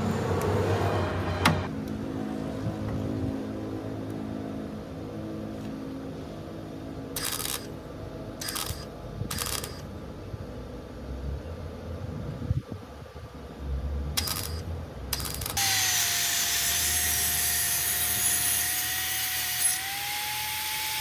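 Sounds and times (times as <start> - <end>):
steady low hum: 0.0 - 21.0
cutting torch hissing: 15.6 - 21.0.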